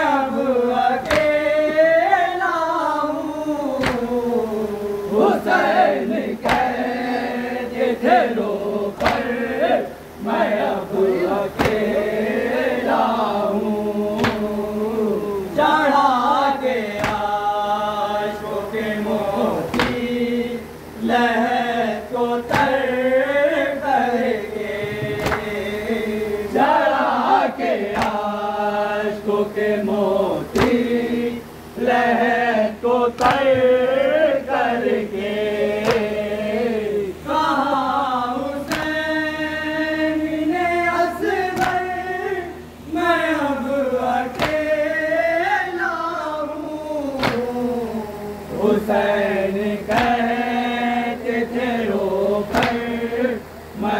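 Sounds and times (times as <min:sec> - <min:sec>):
men chanting into a microphone: 0:00.0 - 0:53.9
hands slapping chests: 0:01.0 - 0:01.4, 0:03.8 - 0:04.1, 0:06.4 - 0:06.8, 0:09.0 - 0:09.3, 0:11.5 - 0:11.9, 0:14.2 - 0:14.6, 0:17.0 - 0:17.3, 0:19.7 - 0:20.1, 0:22.5 - 0:22.8, 0:25.0 - 0:25.6, 0:27.9 - 0:28.3, 0:30.6 - 0:30.8, 0:33.2 - 0:33.7, 0:35.8 - 0:36.2, 0:38.7 - 0:39.0, 0:41.6 - 0:41.9, 0:44.3 - 0:44.7, 0:47.2 - 0:47.5, 0:49.9 - 0:50.2, 0:52.5 - 0:52.9.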